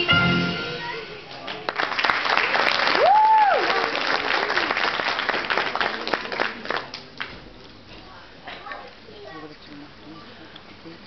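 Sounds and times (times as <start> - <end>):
audience applauding: 1.3 - 7.3
person whooping: 3.0 - 3.6.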